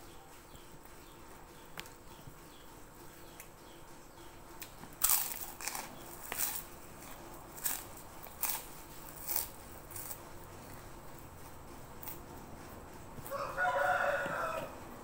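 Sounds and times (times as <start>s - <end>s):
crunching cracker being chewed: 4.6s - 11.0s, 12.0s - 12.2s.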